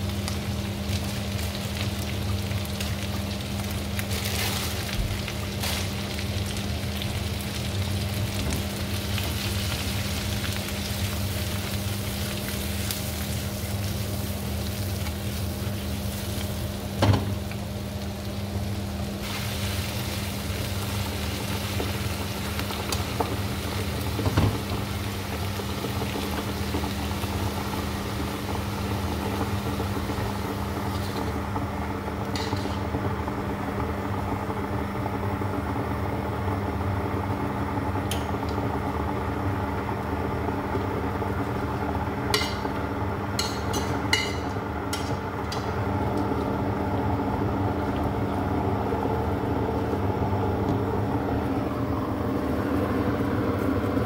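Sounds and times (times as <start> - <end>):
vegetables sizzling in a frying pan: 0.0 - 35.9, 36.5 - 49.2
pan knocking on burner: 43.4 - 45.7.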